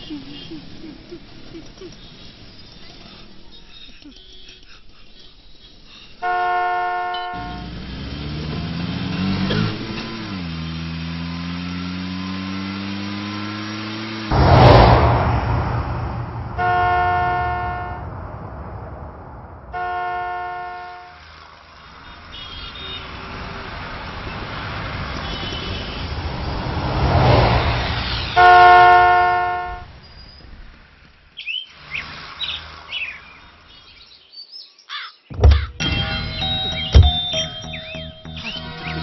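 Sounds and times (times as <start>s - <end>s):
road traffic passing: 0.0s - 34.3s, 35.3s - 39.0s
vehicle horn blasts: 6.2s - 7.7s, 16.6s - 18.1s, 19.7s - 21.2s, 22.1s - 23.2s, 25.2s - 26.1s, 28.3s - 29.9s.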